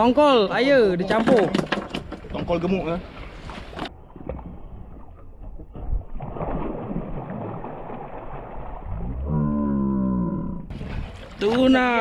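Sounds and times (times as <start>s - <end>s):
fish thrashing and splashing: 3.5s - 9.1s.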